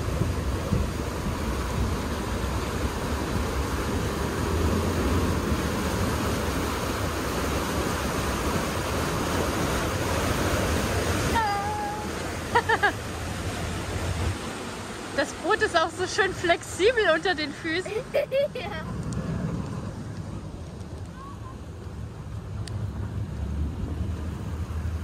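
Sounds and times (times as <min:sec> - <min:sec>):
wind noise on microphone: 0:00.0 - 0:07.0
whitewater rushing: 0:00.0 - 0:25.0.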